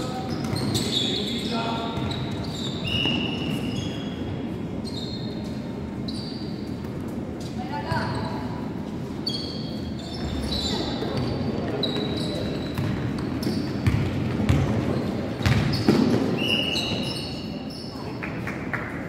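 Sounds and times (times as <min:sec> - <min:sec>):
sneakers squeaking: 0:00.0 - 0:18.2
basketball bouncing: 0:13.8 - 0:16.3.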